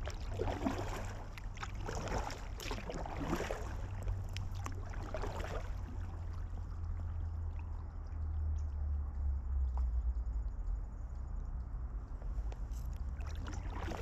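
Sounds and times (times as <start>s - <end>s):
kayak paddle strokes in water: 0.0s - 7.1s, 12.2s - 14.0s
low rumble: 0.0s - 14.0s.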